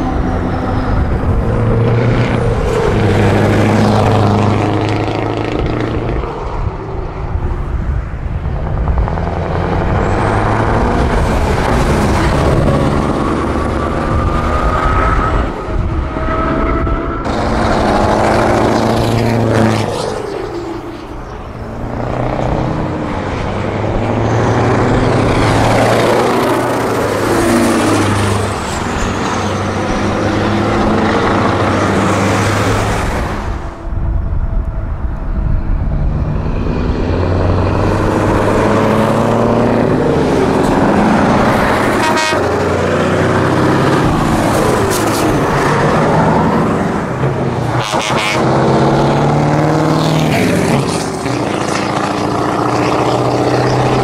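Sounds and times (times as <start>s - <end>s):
diesel trucks driving past: 0.0s - 54.0s
truck horn toots: 41.7s - 42.9s, 47.7s - 48.8s.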